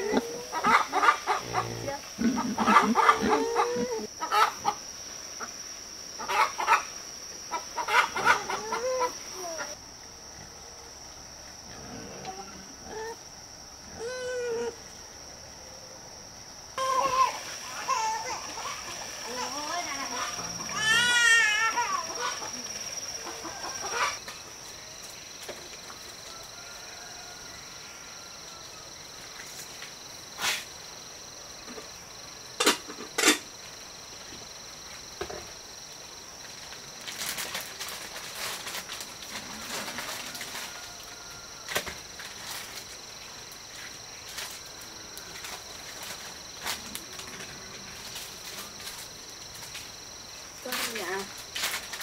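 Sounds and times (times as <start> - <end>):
high-pitched insect drone: 16.8 - 25.1.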